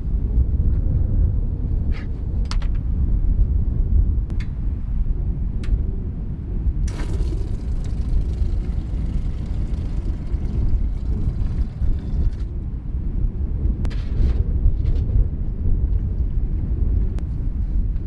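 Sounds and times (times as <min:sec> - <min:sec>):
wind buffeting microphone: 0:00.0 - 0:18.0
hose water running into bucket: 0:06.9 - 0:12.5.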